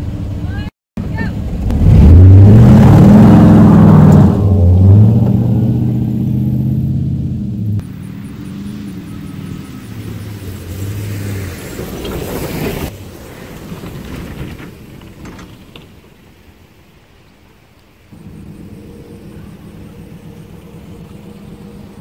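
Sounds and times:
truck engine driving: 0:00.0 - 0:16.8, 0:18.1 - 0:22.0
rushing noise: 0:18.0 - 0:22.0.

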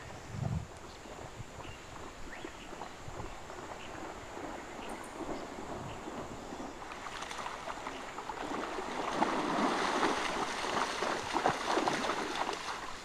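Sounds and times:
animal splashing through water: 0:03.5 - 0:13.0.

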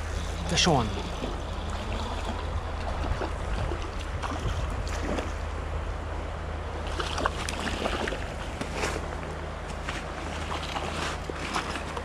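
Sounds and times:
creek water flowing: 0:00.0 - 0:12.0
wind rumble on microphone: 0:00.0 - 0:12.0
fish splashing at the surface: 0:01.0 - 0:05.4, 0:06.8 - 0:09.0.

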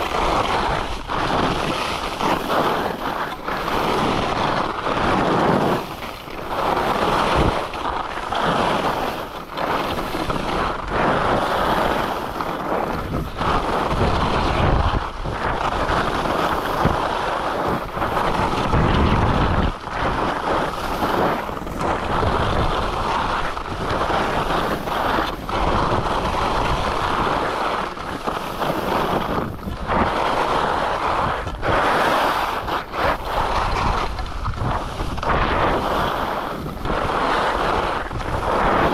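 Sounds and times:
skis scraping on snow: 0:00.0 - 0:38.9
wind rush on microphone: 0:00.0 - 0:38.9.

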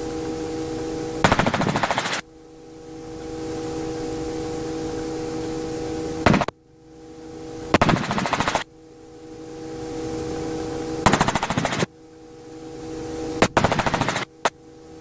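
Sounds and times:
helicopter whine: 0:00.5 - 0:06.5, 0:07.7 - 0:14.5
rapid rotor beating: 0:01.2 - 0:02.2, 0:07.7 - 0:08.7, 0:11.0 - 0:11.9, 0:13.4 - 0:14.5.

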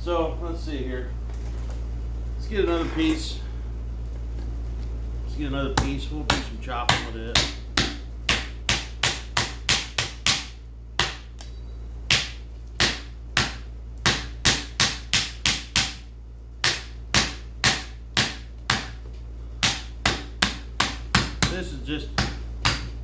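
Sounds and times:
machete chopping wood: 0:12.1 - 0:16.0.

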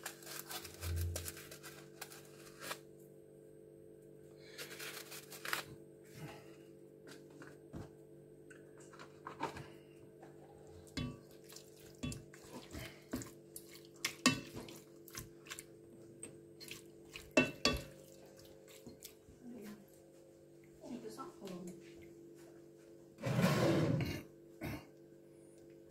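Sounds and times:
spoon knocking and scraping pot: 0:10.9 - 0:11.3, 0:12.0 - 0:12.5, 0:14.0 - 0:14.8, 0:17.3 - 0:18.0.

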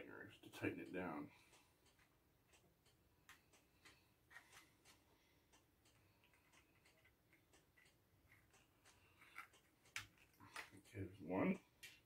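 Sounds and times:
small plastic clicks and taps: 0:05.9 - 0:11.0.

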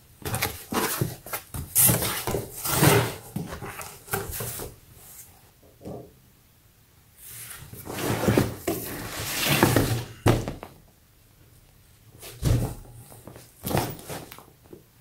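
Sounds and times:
vinyl bag rustling against cardboard: 0:12.2 - 0:14.5.

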